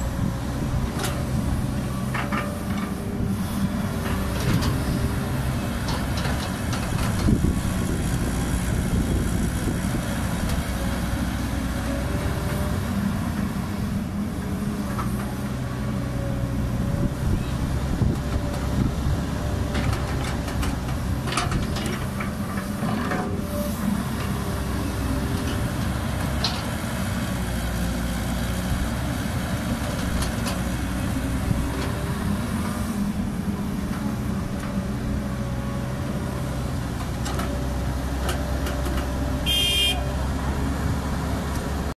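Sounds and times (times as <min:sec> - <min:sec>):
excavator diesel engine running: 0:00.0 - 0:42.0
short high-pitched toot: 0:39.5 - 0:40.1.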